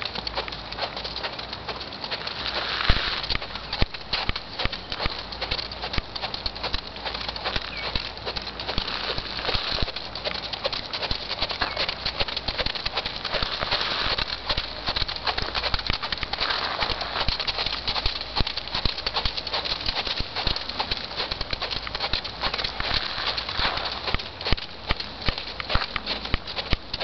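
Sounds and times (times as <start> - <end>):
hoofbeats on sand: 0.0 - 27.0.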